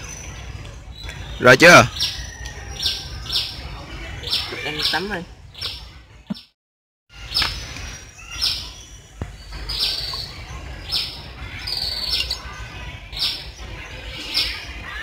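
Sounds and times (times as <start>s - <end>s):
bird chirping: 0.0s - 6.6s, 7.2s - 15.0s.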